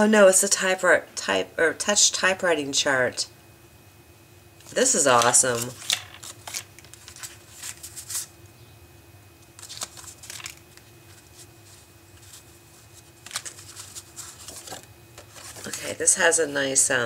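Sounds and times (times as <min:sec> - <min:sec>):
faint steady hum: 0:00.0 - 0:17.0
paper rustling: 0:05.5 - 0:08.3, 0:09.5 - 0:16.1.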